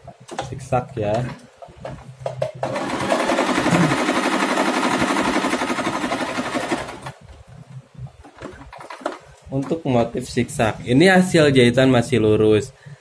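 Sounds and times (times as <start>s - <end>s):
sewing machine clattering: 2.6s - 7.2s.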